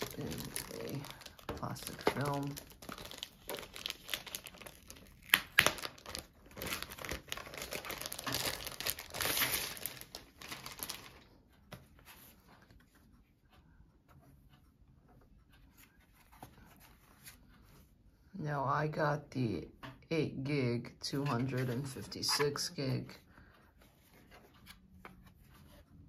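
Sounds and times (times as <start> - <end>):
plastic film crinkling: 0.0 - 11.3.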